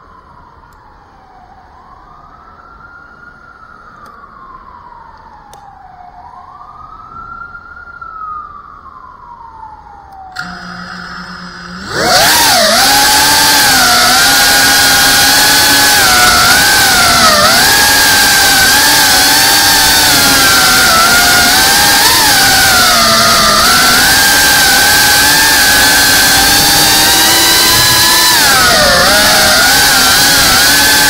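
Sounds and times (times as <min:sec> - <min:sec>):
siren wailing: 0:00.0 - 0:31.0
drone motors whining: 0:10.4 - 0:31.0.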